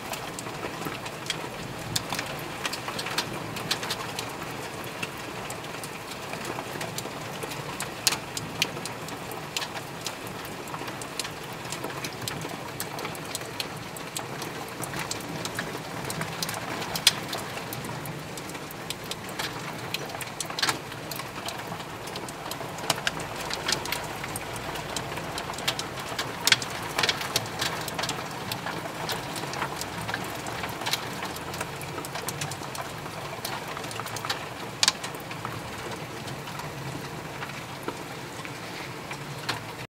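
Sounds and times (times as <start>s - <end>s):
hailstones striking hard surfaces: 10.7s - 36.5s.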